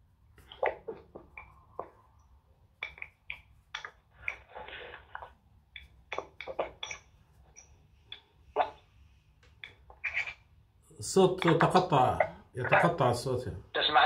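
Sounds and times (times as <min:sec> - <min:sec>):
choppy voice over online call: 0:10.9 - 0:14.0.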